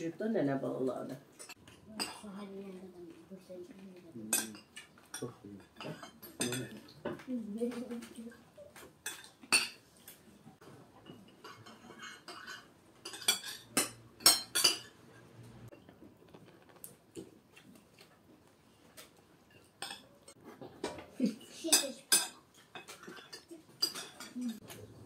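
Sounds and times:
cutlery clinking on plates: 1.3s - 2.2s, 4.3s - 15.8s, 18.9s - 25.0s.

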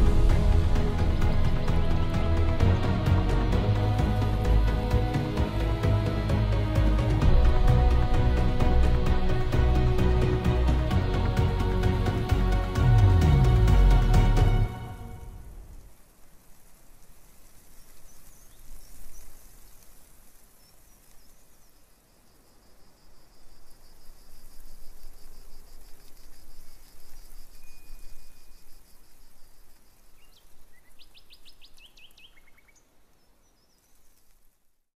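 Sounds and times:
steady hiss: 0.0s - 34.9s
insects: 15.4s - 34.7s
birdsong: 26.5s - 34.2s.

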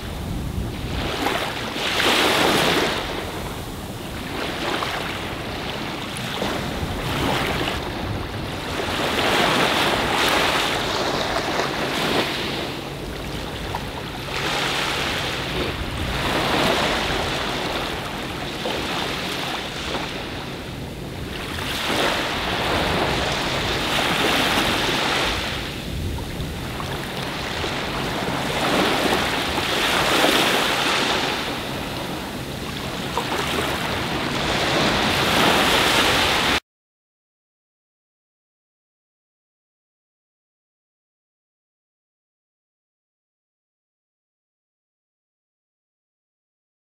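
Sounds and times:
small waves washing on sand: 0.0s - 36.6s
wind on microphone: 0.0s - 36.6s.

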